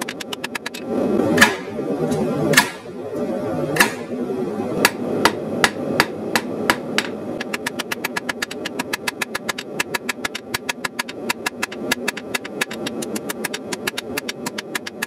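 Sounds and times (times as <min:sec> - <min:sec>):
hammer striking hot metal on anvil: 0:02.6 - 0:02.8.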